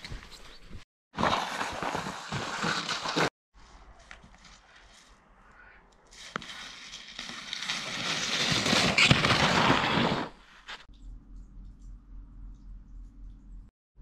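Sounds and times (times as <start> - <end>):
sled scraping on snow: 1.2 - 3.3, 6.2 - 10.9.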